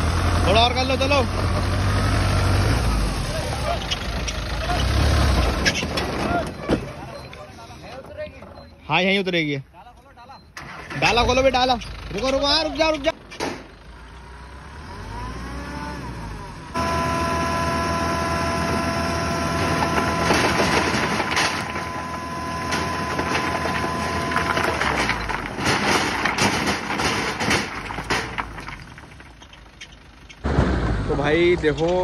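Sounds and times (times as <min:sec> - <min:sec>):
truck engine revving: 0:00.0 - 0:07.0, 0:10.6 - 0:32.0
hydraulic hoist whine: 0:16.8 - 0:25.4
rocks sliding and clattering: 0:19.5 - 0:30.0.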